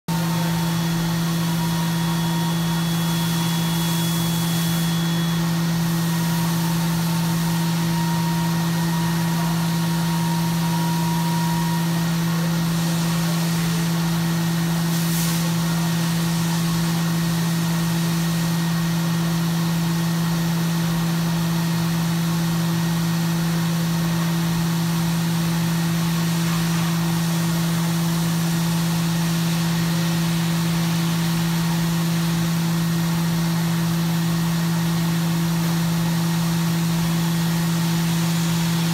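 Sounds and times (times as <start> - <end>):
faint high whine: 0.1 - 14.8
milling machine humming: 0.1 - 14.9, 15.5 - 38.9.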